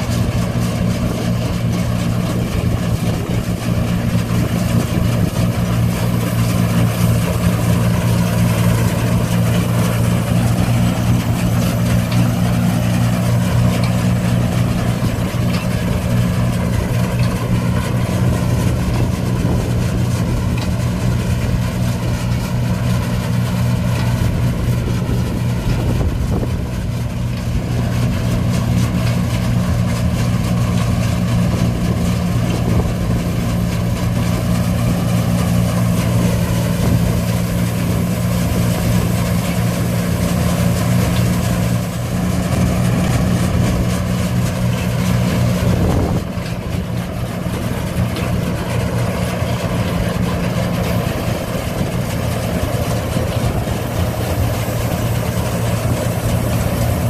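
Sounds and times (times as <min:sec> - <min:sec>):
combine engine drone: 0:00.0 - 0:57.0
threshing machinery clatter: 0:00.0 - 0:57.0.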